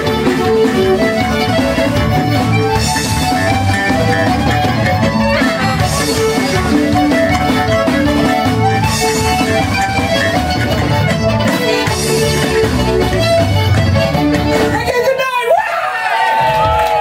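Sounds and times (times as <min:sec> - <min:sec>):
button accordion: 0:00.0 - 0:14.8
fiddle: 0:00.0 - 0:14.8
electric bass: 0:00.0 - 0:14.9
drum kit: 0:00.0 - 0:15.1.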